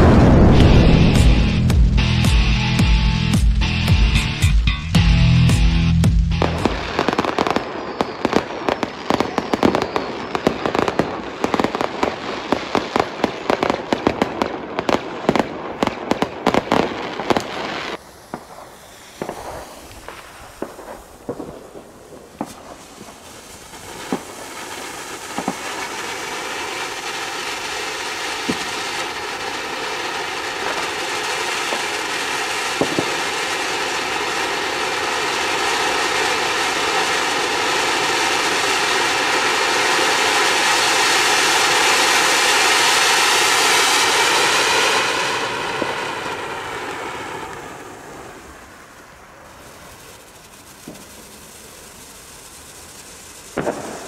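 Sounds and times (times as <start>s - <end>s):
firework fountain hissing: 0.0s - 54.0s
fireworks banging and crackling: 0.0s - 54.0s
distant firework pops: 6.4s - 27.0s, 28.4s - 41.2s, 49.8s - 54.0s.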